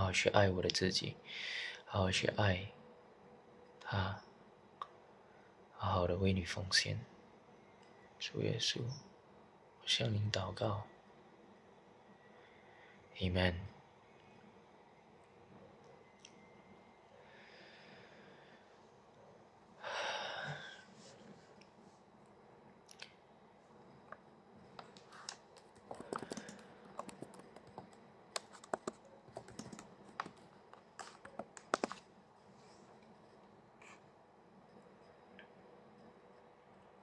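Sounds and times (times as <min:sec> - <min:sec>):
keyboard typing: 0:24.8 - 0:32.1.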